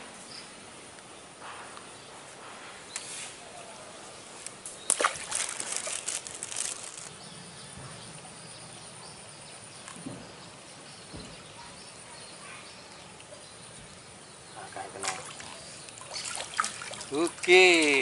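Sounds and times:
water splashing and sloshing: 4.8s - 7.1s, 12.8s - 18.0s.

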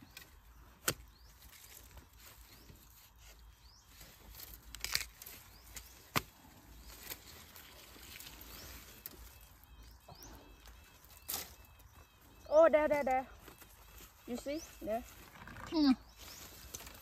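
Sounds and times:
dry leaves rustling: 1.3s - 9.7s, 12.6s - 17.0s.

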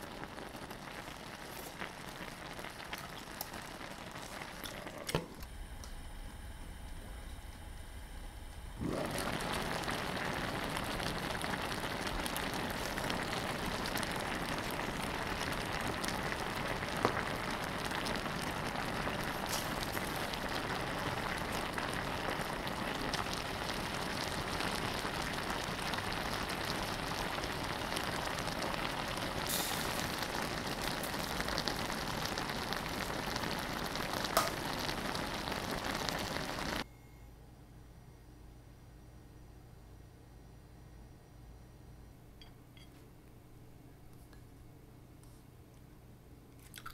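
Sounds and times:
sauce sizzling and bubbling: 0.0s - 5.4s, 8.7s - 36.8s.

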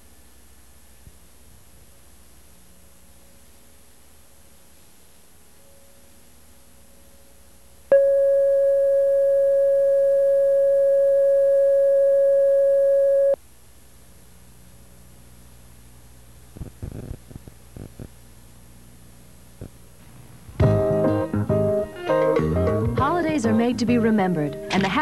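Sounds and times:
electronic test tone: 7.9s - 13.4s.

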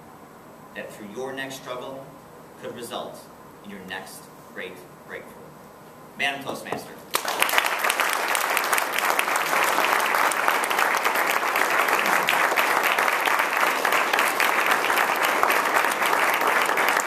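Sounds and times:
audience applauding: 7.1s - 17.0s.

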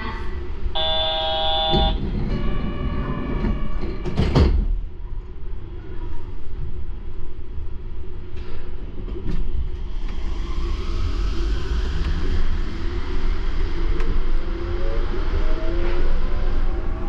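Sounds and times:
train humming: 0.0s - 4.5s, 6.4s - 17.0s
door chime tones: 0.8s - 2.7s
sliding doors shutting: 0.8s - 4.8s.

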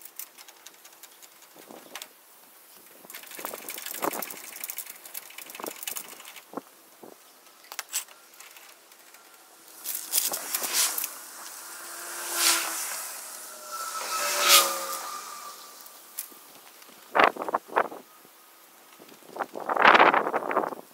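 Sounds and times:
rush of noise: 8.8s - 16.8s.

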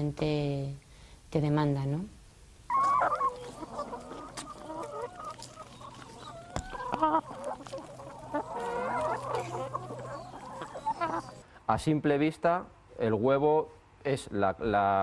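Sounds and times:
hens clucking: 2.7s - 11.4s.

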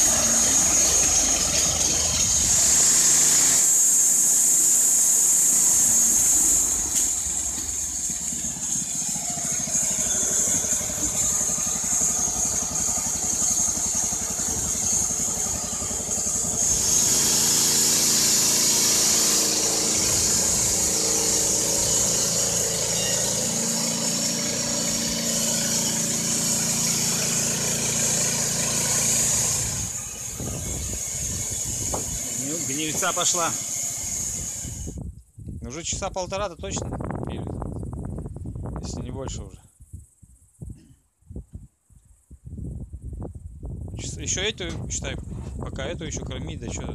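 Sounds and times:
petrol engine under load: 0.0s - 35.0s
saw blade hissing in wood: 0.0s - 35.0s.

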